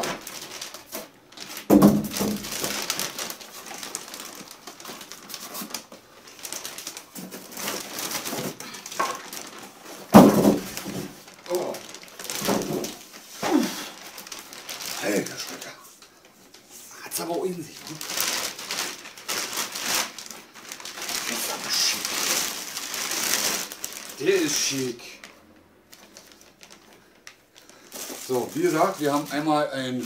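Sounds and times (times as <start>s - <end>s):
plastic bag rustling: 0.0s - 30.0s
heavy thumps: 10.1s - 11.2s.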